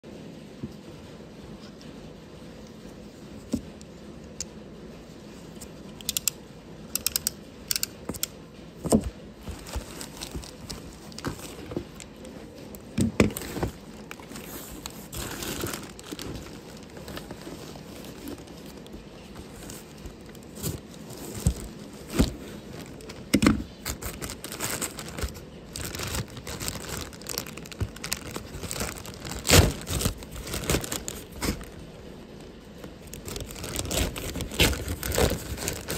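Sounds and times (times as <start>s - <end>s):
plastic bag crinkling: 8.8s - 35.9s.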